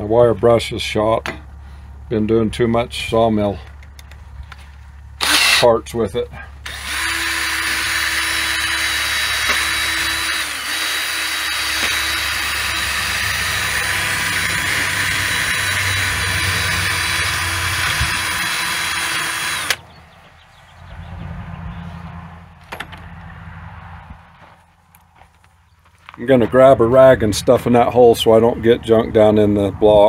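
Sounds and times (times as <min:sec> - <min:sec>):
drill with wire brush grinding: 0:05.2 - 0:05.7, 0:06.6 - 0:19.8.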